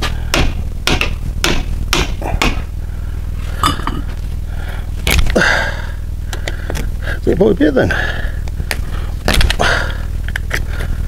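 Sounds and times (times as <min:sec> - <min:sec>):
hammer knocking on metal: 0:00.3 - 0:02.6.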